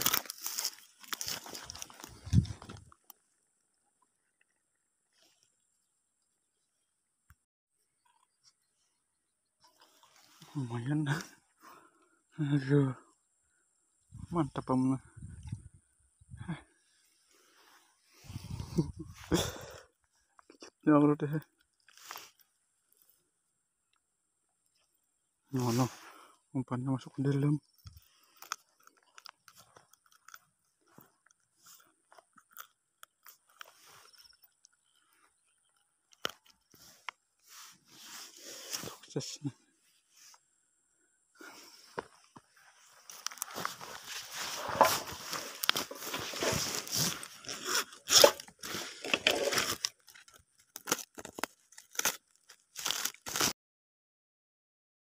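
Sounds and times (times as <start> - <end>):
footsteps crunching through dry grass: 0.0 - 2.9, 41.8 - 49.9.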